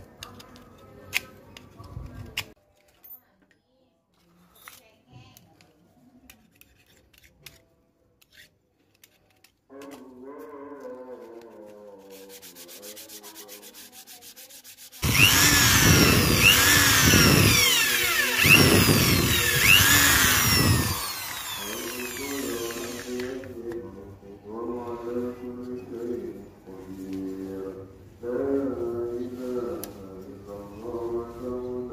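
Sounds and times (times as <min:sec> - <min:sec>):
sandpaper rubbing on wood: 0:12.0 - 0:17.0.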